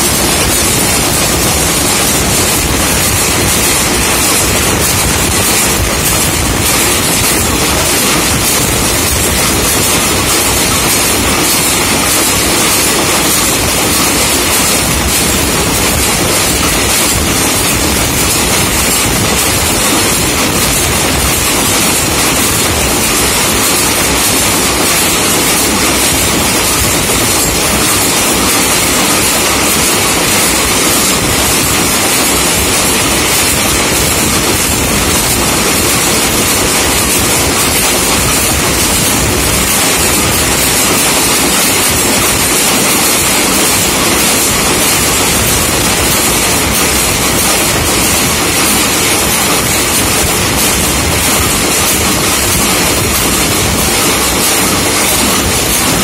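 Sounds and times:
machine mechanical clatter: 0:00.0 - 0:56.0.

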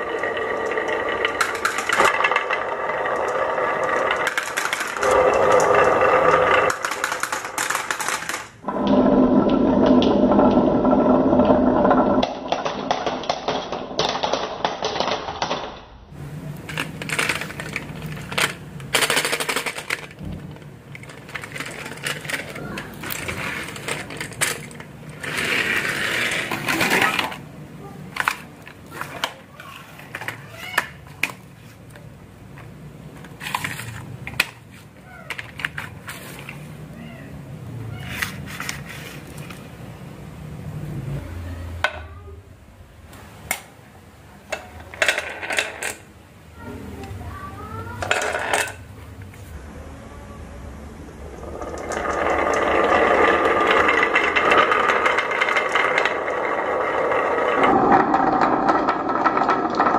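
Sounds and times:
marbles clicking and knocking: 0:00.0 - 0:15.8, 0:16.5 - 0:27.4, 0:48.0 - 0:48.8, 0:51.3 - 0:59.9
marbles rolling down track: 0:00.0 - 0:15.8, 0:16.6 - 0:27.4, 0:28.1 - 0:31.5, 0:44.5 - 0:46.1, 0:48.0 - 0:48.8, 0:51.2 - 0:59.9.

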